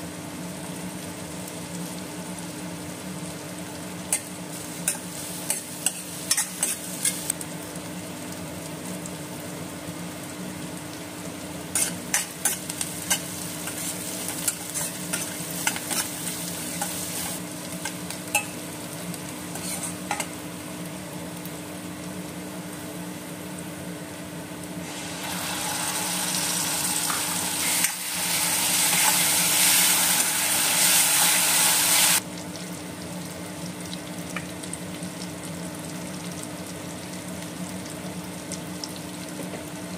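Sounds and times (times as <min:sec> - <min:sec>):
onions frying in oil: 0:00.0 - 0:39.9
spatula scraping a pan: 0:04.9 - 0:07.3, 0:19.5 - 0:20.1.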